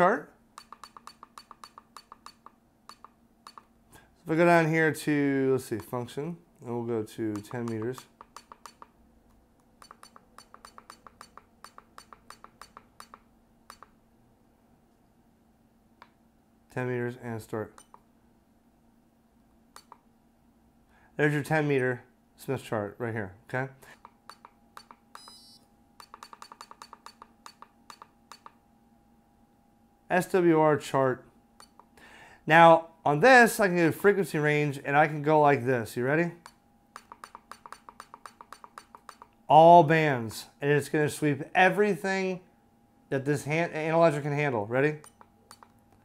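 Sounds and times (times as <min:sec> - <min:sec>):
keypad beep-clicks: 0:00.6 - 0:03.7, 0:09.8 - 0:13.9, 0:24.3 - 0:28.6, 0:45.0 - 0:45.7
faint steady tone: 0:23.9 - 0:32.6.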